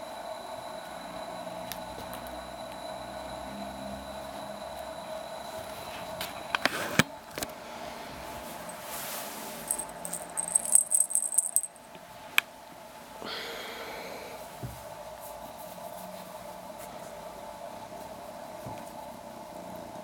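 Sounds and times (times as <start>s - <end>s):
faint steady hum: 0.0s - 20.0s
cat toy jingling: 9.7s - 11.9s.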